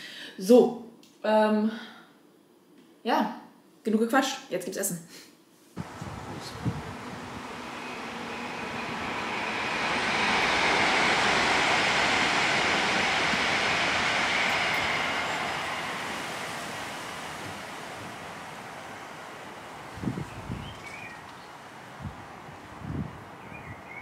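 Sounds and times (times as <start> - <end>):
vehicle passing: 5.8 - 20.3.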